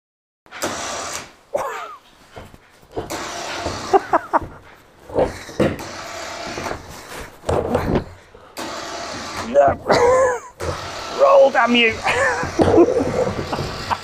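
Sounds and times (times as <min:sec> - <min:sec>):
electric winch running: 0:00.6 - 0:01.4, 0:03.0 - 0:04.5, 0:05.5 - 0:07.2, 0:08.5 - 0:14.0
casters scraping on wood: 0:02.0 - 0:14.0
knocks and scrapes: 0:02.1 - 0:14.0.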